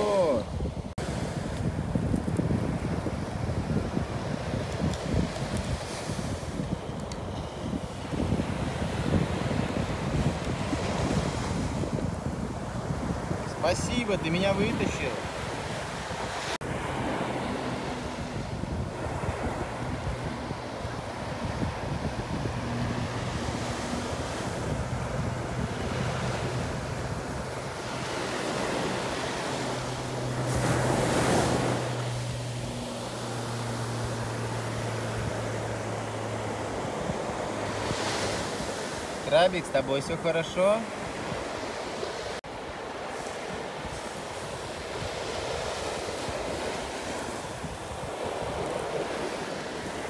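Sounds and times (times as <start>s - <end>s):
sea waves washing on beach: 0.0s - 50.0s
wind gusting over microphone: 0.0s - 50.0s.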